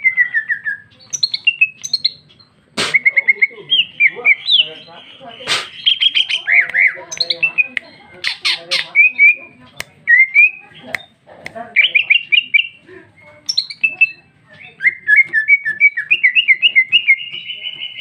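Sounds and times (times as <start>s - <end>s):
bird singing whistled phrases: 0.0s - 2.2s, 10.1s - 10.6s, 13.4s - 18.0s.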